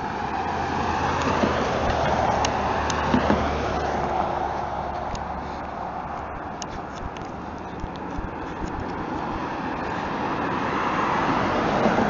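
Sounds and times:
car driving past: 0.0 - 6.1.

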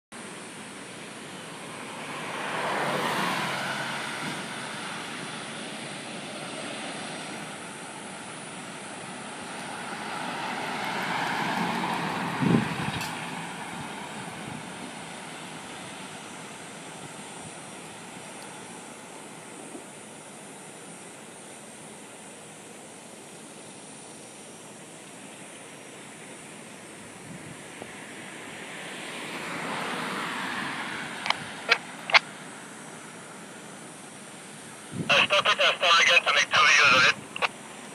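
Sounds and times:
van engine and tyre noise: 0.1 - 37.9
thump of passing trailer: 3.5 - 4.6.

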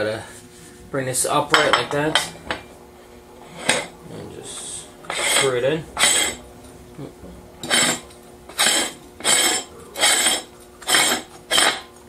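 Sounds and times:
metal threads scraping: 3.4 - 6.8, 7.6 - 12.0.

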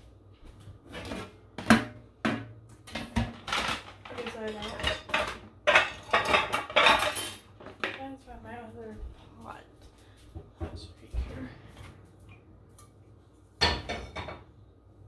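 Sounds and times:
dishes and utensils clinking: 1.0 - 7.9, 13.6 - 14.5.

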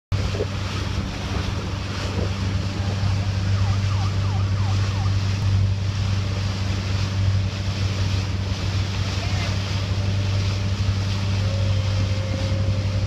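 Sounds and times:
wind: 0.0 - 13.0
motorboat engine humming: 0.1 - 13.0
water noise: 0.1 - 13.0
siren whoops: 3.5 - 5.2.

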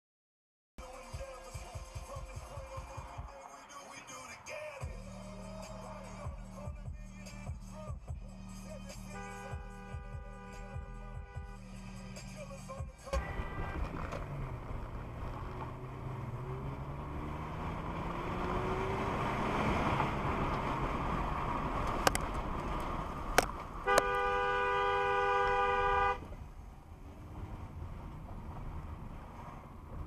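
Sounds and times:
road noise: 0.8 - 30.0
car horn blast: 9.0 - 12.1, 13.0 - 14.4, 23.8 - 26.3
car engine accelerating: 11.8 - 24.3, 25.0 - 30.0.

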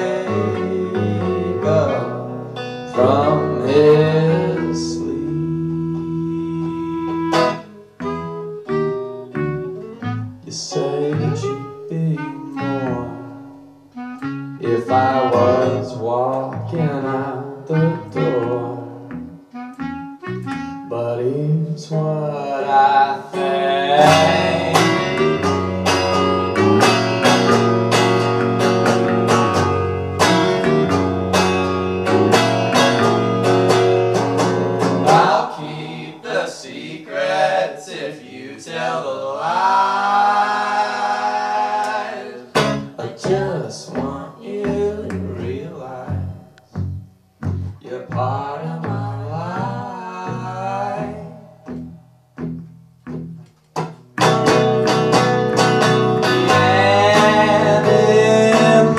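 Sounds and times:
man singing: 0.0 - 2.3, 2.9 - 7.6, 10.4 - 13.4, 14.6 - 19.1, 20.9 - 25.5, 35.0 - 39.4, 40.0 - 46.6, 47.8 - 51.5, 56.4 - 58.9
electric guitar strumming: 0.0 - 21.2, 22.0 - 36.4, 41.8 - 48.4, 51.0 - 58.9
bass guitar: 0.0 - 35.5, 42.5 - 58.9
clarinet: 0.0 - 36.4.

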